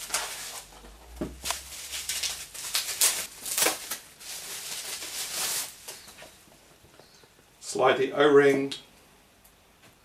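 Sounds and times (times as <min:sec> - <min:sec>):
plastic and foam packaging rustling: 0:00.0 - 0:07.1.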